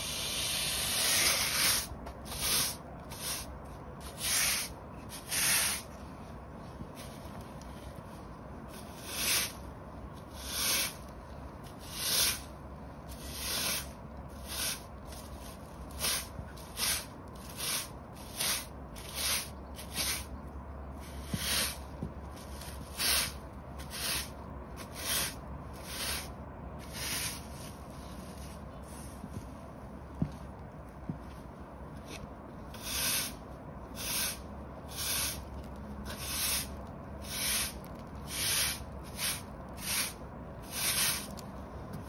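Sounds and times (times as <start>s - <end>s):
push broom sweeping concrete: 0.0s - 6.0s, 8.7s - 11.1s, 11.7s - 20.4s, 21.0s - 29.2s, 32.1s - 41.4s.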